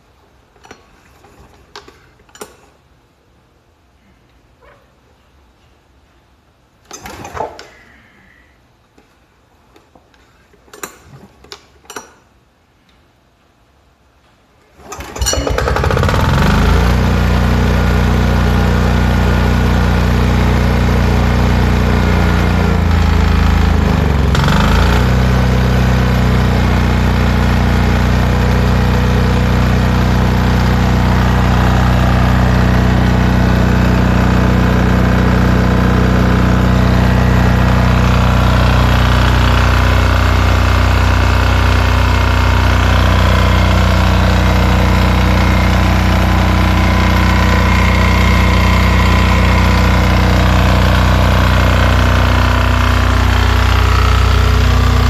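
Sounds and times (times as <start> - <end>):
recoil starter pull: 6.8 - 7.8, 14.7 - 55.0
diesel engine running: 15.0 - 55.0.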